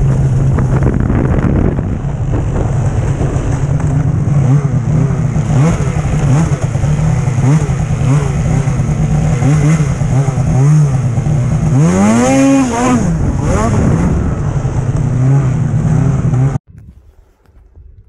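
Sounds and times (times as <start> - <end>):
snowmobile engine with throttle blips: 0.0 - 18.0.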